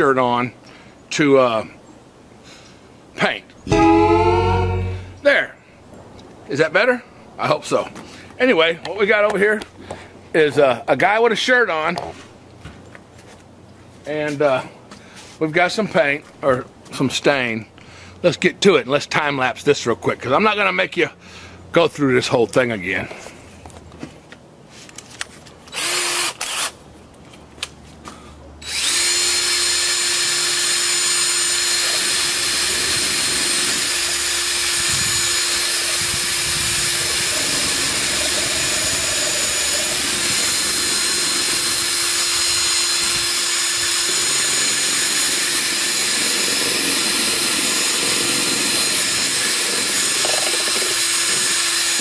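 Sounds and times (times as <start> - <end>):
power tool motor whining: 25.7 - 26.8, 28.6 - 52.0.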